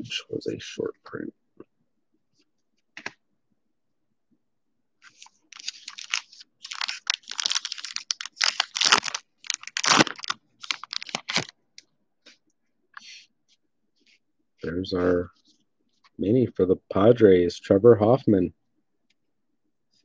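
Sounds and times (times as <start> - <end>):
wrapper crinkling and ripping: 5.0 - 11.5.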